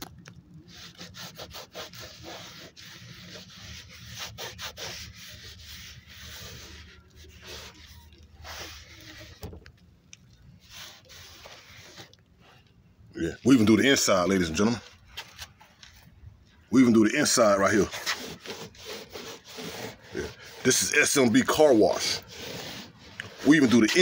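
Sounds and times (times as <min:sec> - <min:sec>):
scouring pad scrubbing plastic: 0:00.7 - 0:09.5, 0:10.6 - 0:12.6, 0:16.8 - 0:24.0.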